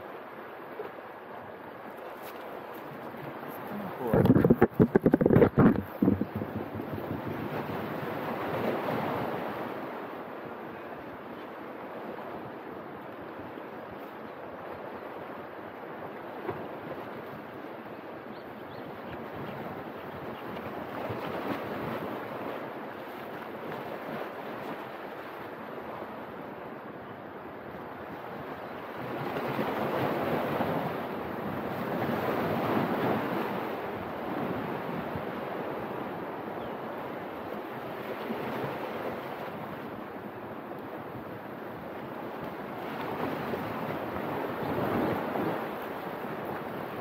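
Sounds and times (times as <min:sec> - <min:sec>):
wind: 0:00.0 - 0:47.0
lapping water: 0:03.5 - 0:07.2.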